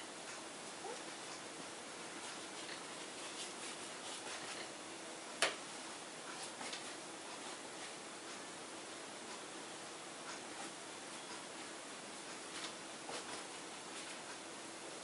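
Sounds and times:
paintbrush strokes on canvas: 2.1s - 4.8s.

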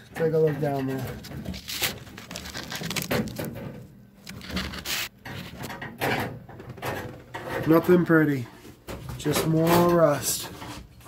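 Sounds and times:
camera scraping rusty sheet metal: 0.2s - 8.1s.

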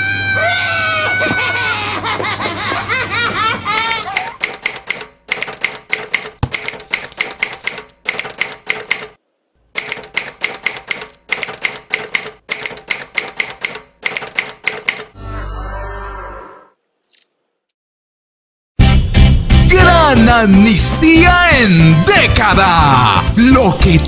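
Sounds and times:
typewriter key clacks: 3.9s - 9.2s, 9.8s - 15.1s.

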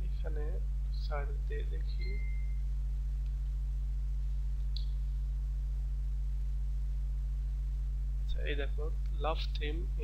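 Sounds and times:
low electrical hum: 0.0s - 10.0s
faint click: 4.6s - 5.0s.

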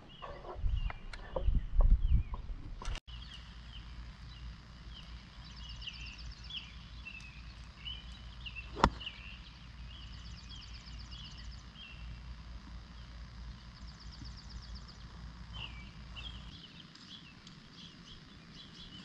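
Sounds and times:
birds chirping: 0.0s - 19.0s
golf club striking ball: 8.7s - 9.4s.

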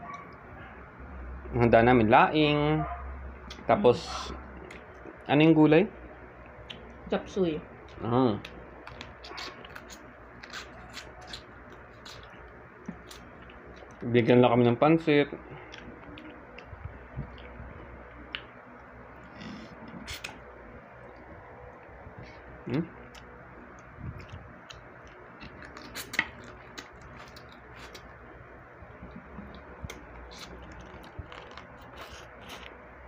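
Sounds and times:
close-up eating sounds: 7.7s - 33.0s.

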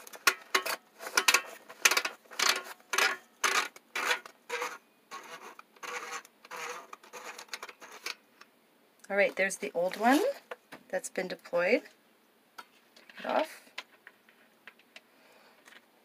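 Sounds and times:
plastic cartridge holder scraping: 0.0s - 8.2s.

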